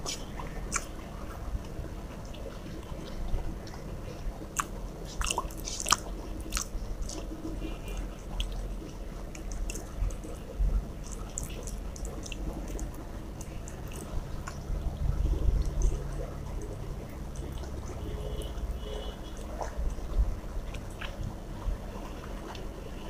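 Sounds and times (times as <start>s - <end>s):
food squished by hand: 0.0s - 1.0s, 4.5s - 14.8s
chewing: 0.0s - 20.0s, 20.6s - 22.7s
low steady hum: 0.0s - 23.0s.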